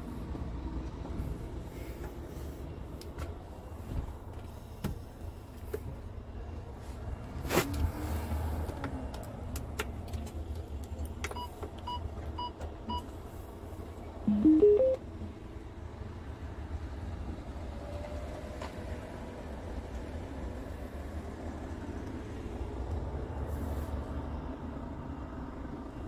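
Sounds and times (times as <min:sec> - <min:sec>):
rising electronic chime: 0:14.3 - 0:15.0
short electronic beeps: 0:14.3 - 0:15.0.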